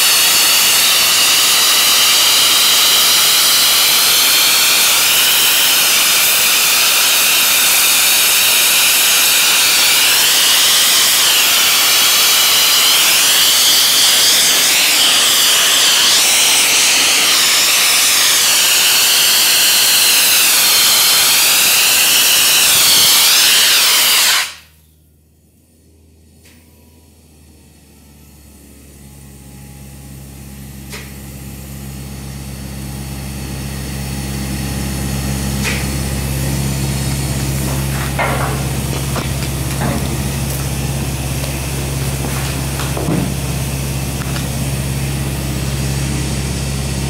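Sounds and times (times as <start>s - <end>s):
blasting nozzle hissing: 0.0s - 24.7s, 35.6s - 46.0s.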